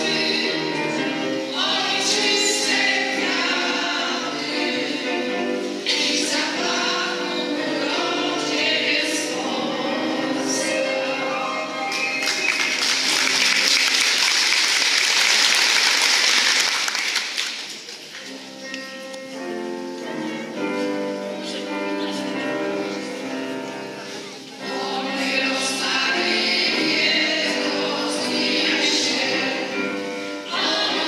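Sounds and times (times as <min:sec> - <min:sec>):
women's choir singing: 0:00.0 - 0:13.5, 0:21.4 - 0:31.0
audience applause: 0:11.8 - 0:18.3.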